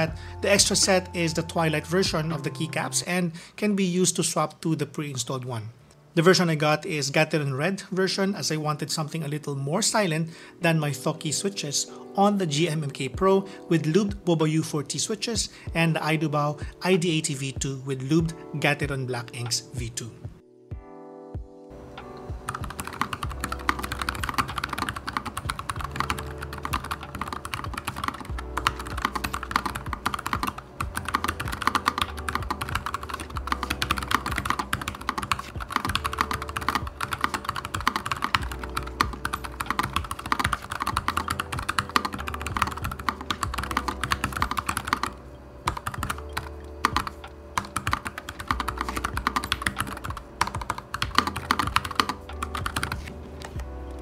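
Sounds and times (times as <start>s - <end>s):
fast typing on keyboard: 22.5s - 53.7s.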